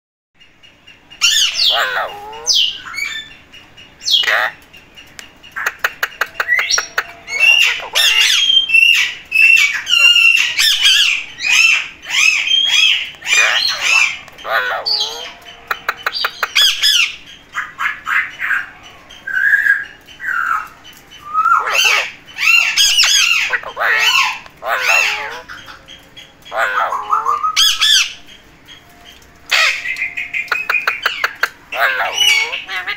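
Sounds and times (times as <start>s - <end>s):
parakeets squawking: 0.7s - 32.9s.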